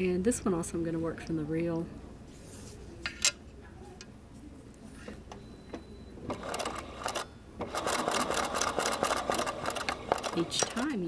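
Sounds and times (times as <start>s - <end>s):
sewing machine stitching: 6.3s - 11.0s.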